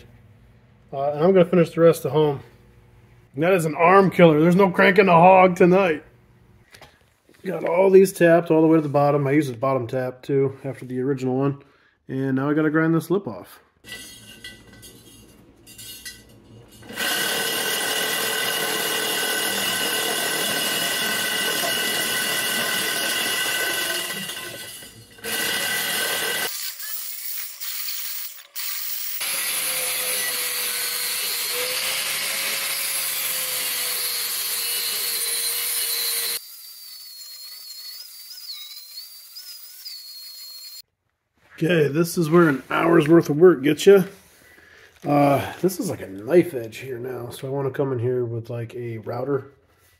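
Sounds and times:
angle grinder grinding metal: 0:13.9 - 0:40.8.

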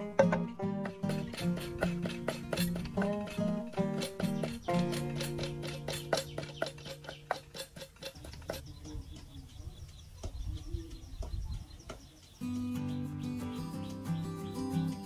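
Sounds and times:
plucked acoustic guitar music: 0:00.0 - 0:08.6, 0:12.4 - 0:15.0
outdoor ambience: 0:00.0 - 0:15.0
bird chirps: 0:00.1 - 0:15.0.

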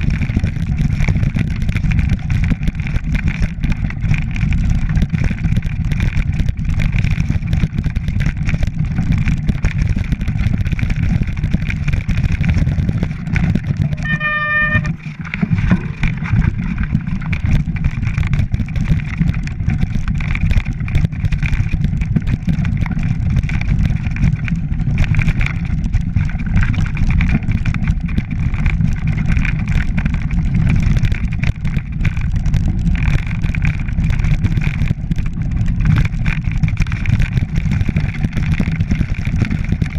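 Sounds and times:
bike rattling over stones: 0:00.0 - 0:39.9
bike rolling low rumble: 0:00.0 - 0:39.9
high squeal: 0:13.9 - 0:15.0.

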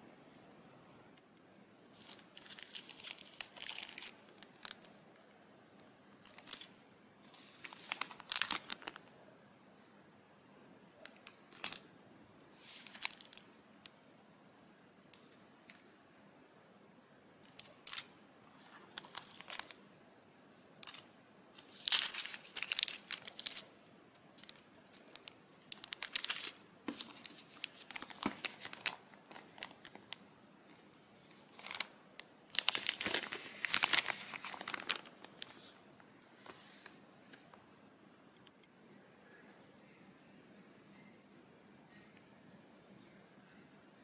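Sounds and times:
plastic bags crinkling: 0:02.0 - 0:04.9, 0:06.2 - 0:09.1, 0:11.0 - 0:11.8, 0:12.6 - 0:13.5, 0:17.4 - 0:19.8, 0:20.8 - 0:23.7, 0:24.4 - 0:30.2, 0:31.3 - 0:35.8.

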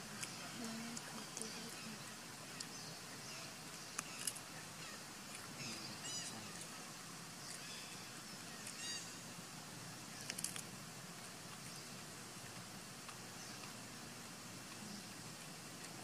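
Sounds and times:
high-pitched animal calls: 0:05.6 - 0:06.8.

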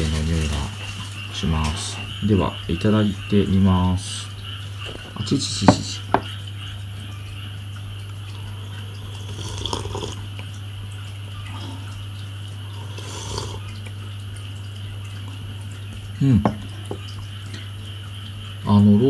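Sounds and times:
steady low hum: 0:00.0 - 0:19.0
person slurping tea: 0:09.0 - 0:10.3, 0:12.7 - 0:13.7.

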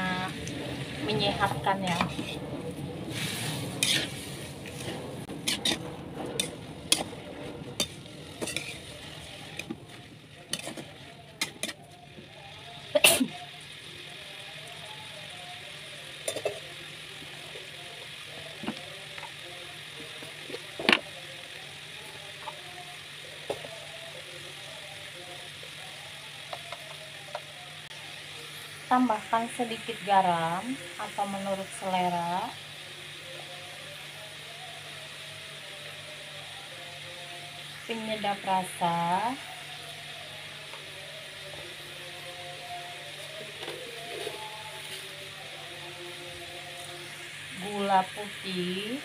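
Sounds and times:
steady sizzle: 0:00.0 - 0:49.0
metal spatula scraping pan: 0:01.8 - 0:02.4, 0:03.1 - 0:09.0, 0:10.5 - 0:11.8.

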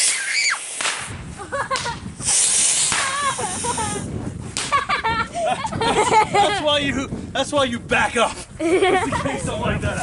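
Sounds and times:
firework fountain hissing: 0:00.0 - 0:04.1
firework pop: 0:00.8 - 0:03.3.

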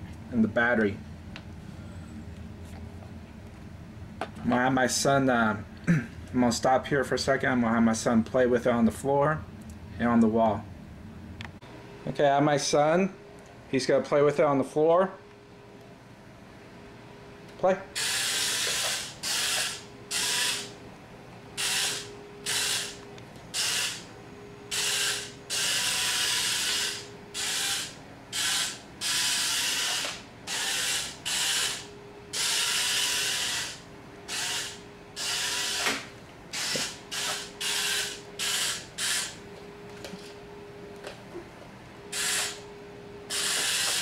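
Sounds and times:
faint steady hum: 0:00.0 - 0:44.0
toy car motors whirring: 0:18.0 - 0:20.7, 0:21.6 - 0:24.0, 0:24.7 - 0:39.4, 0:42.1 - 0:42.6, 0:43.3 - 0:44.0.

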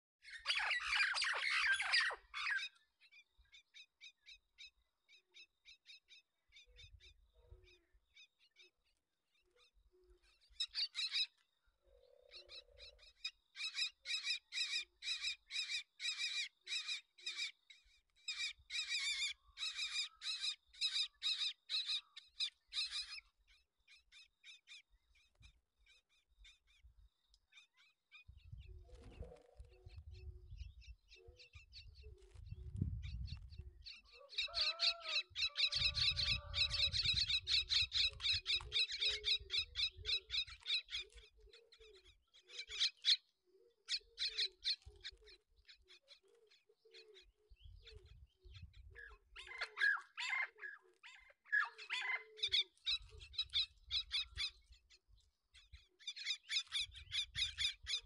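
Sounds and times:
bird chicks begging calls: 0:32.9 - 0:41.2, 0:47.2 - 0:54.6.

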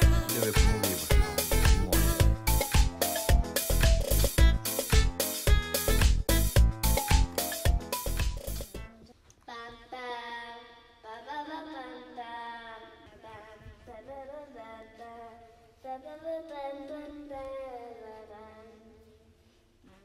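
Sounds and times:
child singing held notes: 0:00.0 - 0:02.4.

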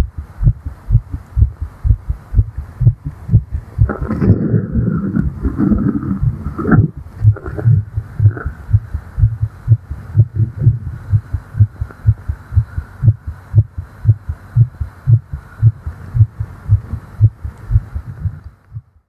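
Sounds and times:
fast heartbeat: 0:00.0 - 0:19.0.

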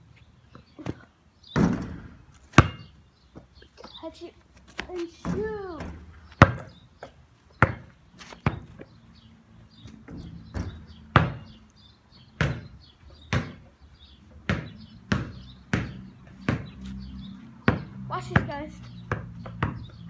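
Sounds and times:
basketball bouncing on hard surface: 0:01.6 - 0:03.5, 0:04.9 - 0:08.9, 0:10.0 - 0:11.6, 0:12.4 - 0:13.7, 0:14.4 - 0:16.8, 0:17.6 - 0:20.0.

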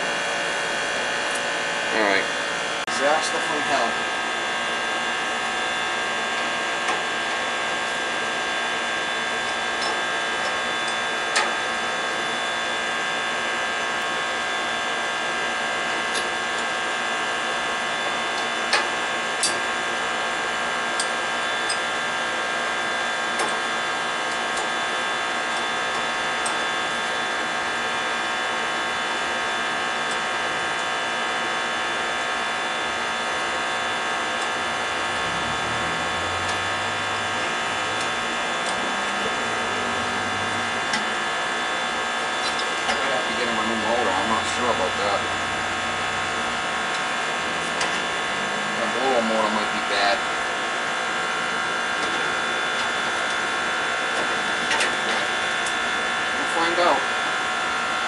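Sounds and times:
electric motor whining: 0:33.4 - 0:51.7.

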